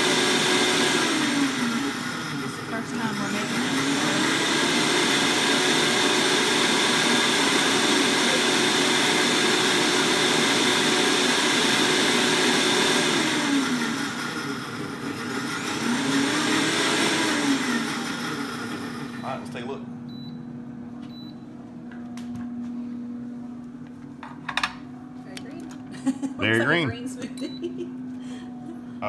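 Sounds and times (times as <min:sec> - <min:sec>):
blender motor running: 0:00.0 - 0:19.8.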